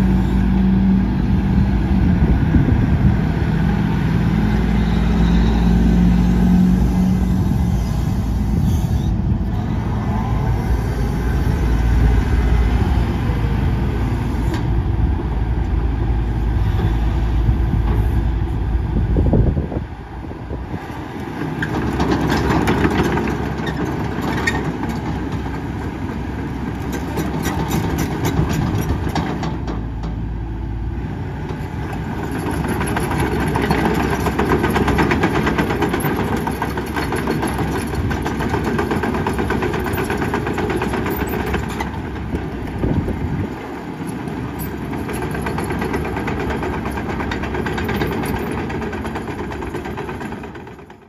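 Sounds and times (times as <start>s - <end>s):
excavator diesel engine working: 0.0s - 51.0s.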